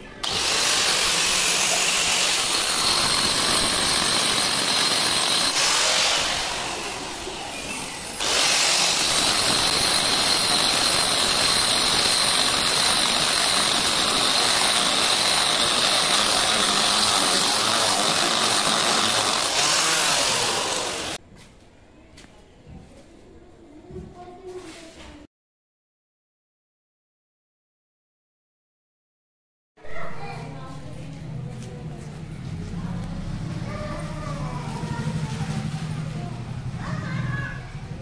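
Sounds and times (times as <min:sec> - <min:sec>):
angle grinder boring through stone: 0:00.2 - 0:21.2.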